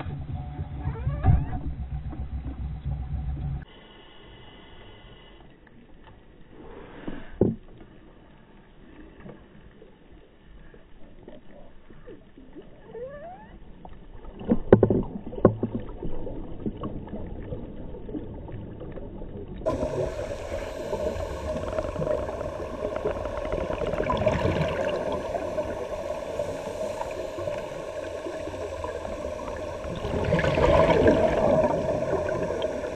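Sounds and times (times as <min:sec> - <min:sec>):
exhaled bubbles: 0:00.0 - 0:03.7, 0:14.2 - 0:32.9
regulator breathing underwater: 0:19.7 - 0:32.9
steady drone: 0:19.7 - 0:32.9.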